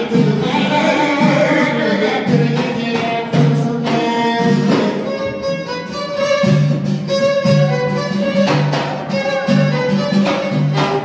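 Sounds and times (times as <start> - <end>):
frame drum beat: 0.0 - 11.0
violin wavering melody: 5.0 - 11.0.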